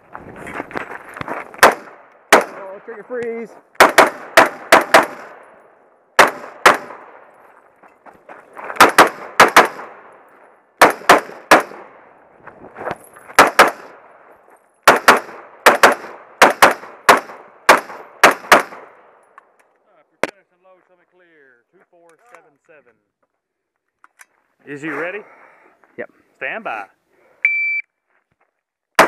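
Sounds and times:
rifle gunshots with echo: 0:01.6 - 0:02.8, 0:03.8 - 0:05.5, 0:06.2 - 0:07.3, 0:08.8 - 0:10.2, 0:10.8 - 0:12.1, 0:13.4 - 0:14.1, 0:14.8 - 0:19.2.

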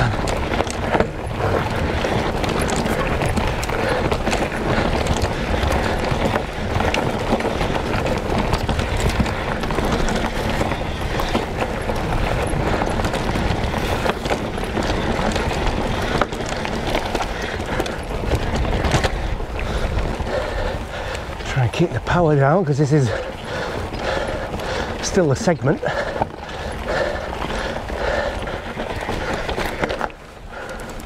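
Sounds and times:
bike knocks and rattles: 0:00.0 - 0:21.1
bike tyre noise: 0:00.0 - 0:31.0.

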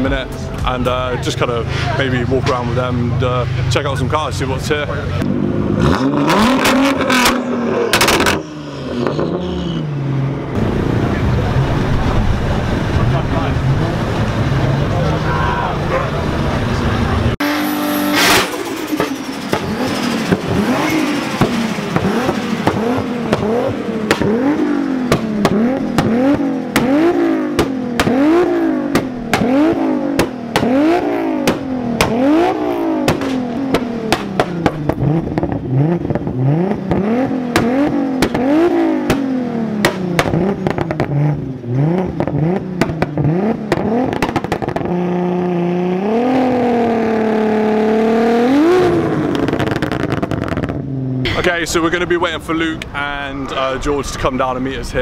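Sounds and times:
car engine revving: 0:00.0 - 0:55.0
exhaust pops and bangs: 0:06.5 - 0:09.2, 0:18.2 - 0:45.1, 0:49.2 - 0:52.0.

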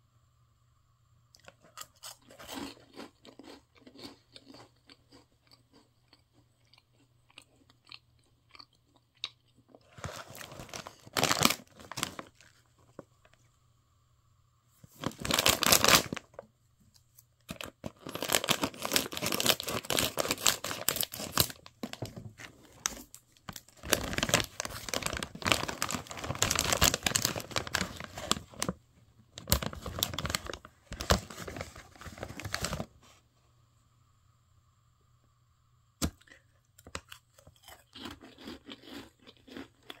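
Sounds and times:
plastic bag crinkling and tearing: 0:09.8 - 0:12.7, 0:14.9 - 0:16.4, 0:17.5 - 0:28.8, 0:29.4 - 0:32.9.

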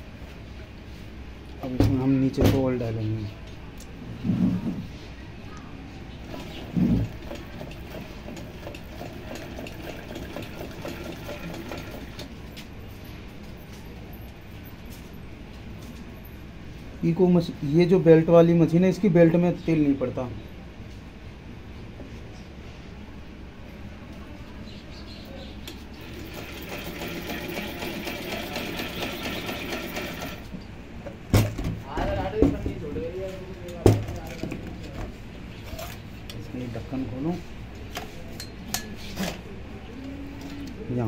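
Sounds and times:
sewing machine mechanism clattering: 0:06.3 - 0:12.3, 0:26.0 - 0:30.4.

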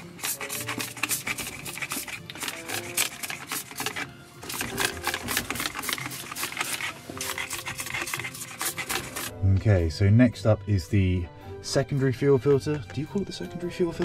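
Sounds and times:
spray bottle hissing squirts: 0:00.0 - 0:09.3.

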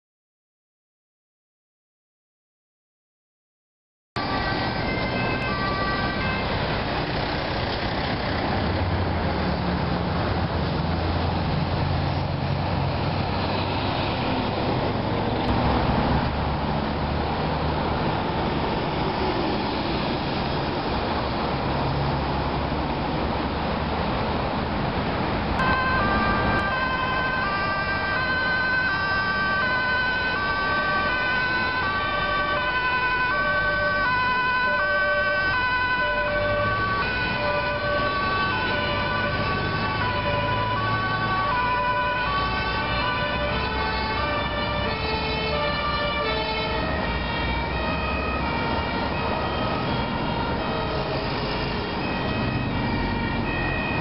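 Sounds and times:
two-tone emergency sirens: 0:04.2 - 0:07.8, 0:25.6 - 0:54.0
motorway traffic noise: 0:04.2 - 0:54.0.

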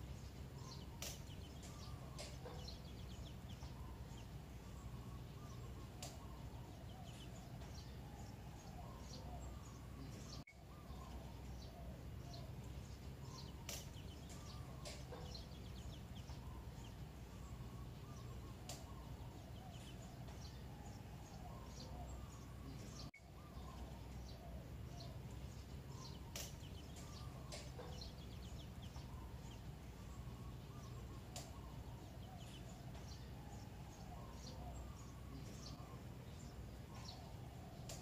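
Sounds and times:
birds chirping and calling: 0:00.0 - 0:38.0.

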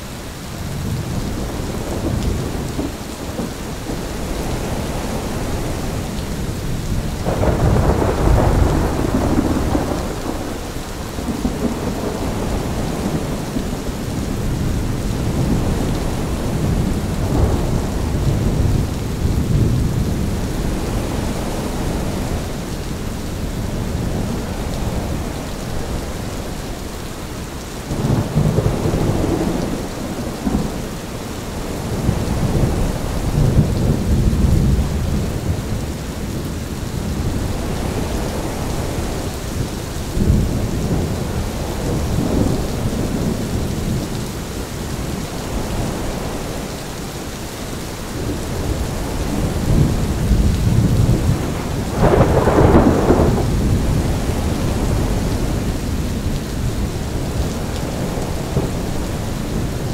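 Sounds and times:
steady rain: 0:00.0 - 0:59.9
wind gusts: 0:00.0 - 0:59.9
thunder rolling: 0:06.9 - 0:22.8, 0:48.2 - 0:59.9.

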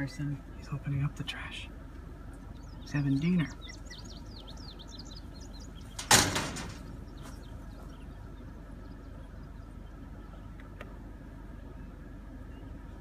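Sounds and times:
faint birds chirping: 0:00.0 - 0:13.0
metal bin lid banging shut: 0:06.0 - 0:06.8.

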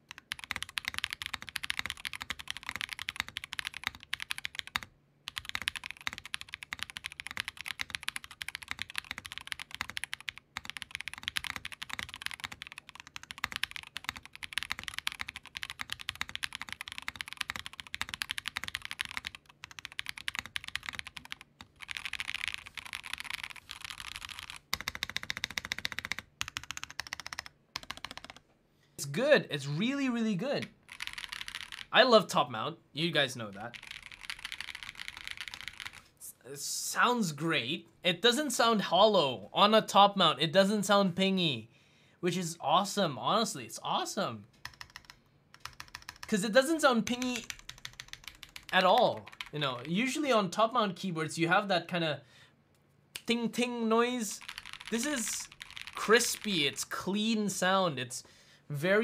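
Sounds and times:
mechanical keyboard typing: 0:00.0 - 0:28.4, 0:30.6 - 0:31.9, 0:33.6 - 0:36.1, 0:44.6 - 0:46.4, 0:47.0 - 0:49.9, 0:54.3 - 0:56.6.

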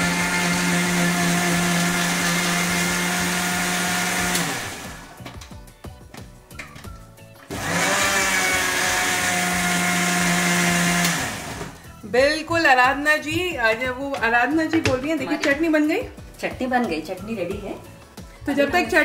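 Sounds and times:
mixer grinder running: 0:00.0 - 0:05.2, 0:07.5 - 0:11.8.

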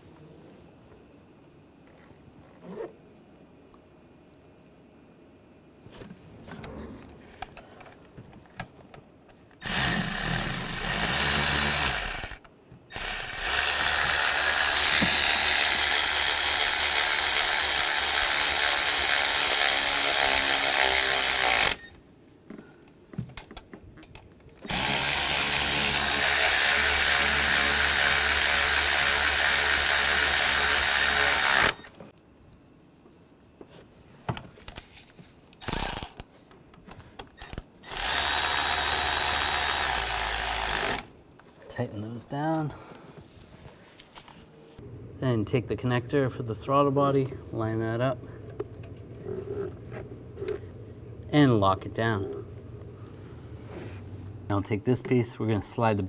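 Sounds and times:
power tool whirring: 0:09.6 - 0:21.9, 0:24.7 - 0:31.9, 0:37.4 - 0:41.1.

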